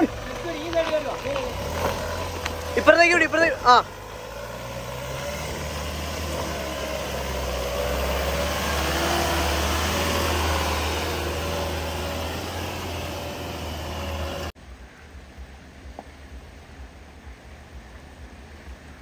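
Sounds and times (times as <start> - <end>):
vehicle engine droning: 0.0 - 14.6.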